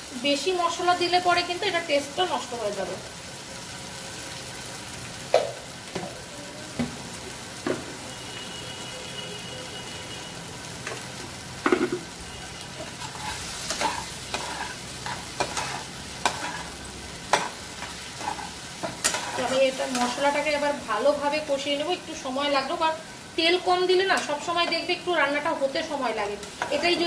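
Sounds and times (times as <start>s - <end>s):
potatoes sizzling in a frying pan: 0.0s - 27.0s
metal spatula scraping a pan: 12.8s - 20.4s, 26.4s - 27.0s.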